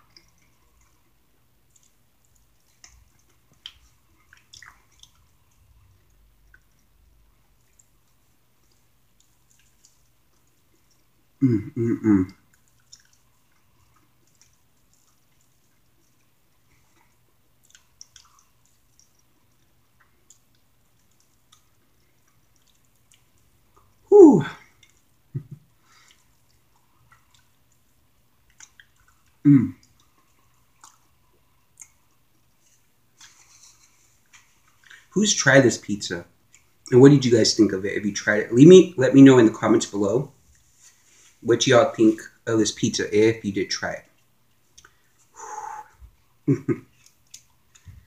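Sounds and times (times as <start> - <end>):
wet chewing and mouth clicks: 0.0 - 35.1, 36.4 - 37.0, 44.0 - 48.0
person humming mm: 11.4 - 12.4, 24.1 - 24.7, 45.4 - 46.7.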